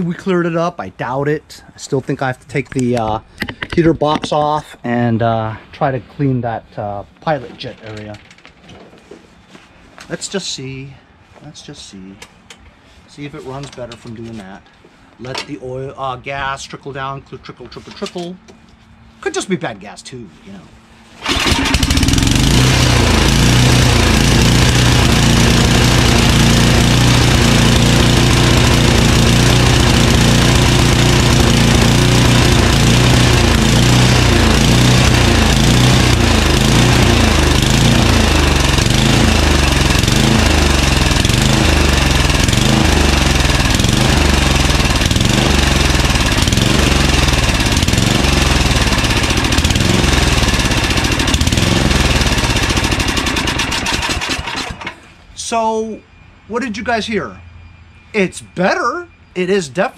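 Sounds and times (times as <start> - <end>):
snowblower engine surging: 21.2 - 55.8.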